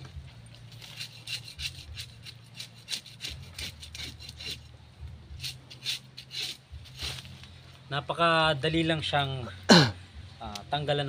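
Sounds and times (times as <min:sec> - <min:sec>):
knife scraping fish scales: 0:00.7 - 0:04.7, 0:05.3 - 0:07.4.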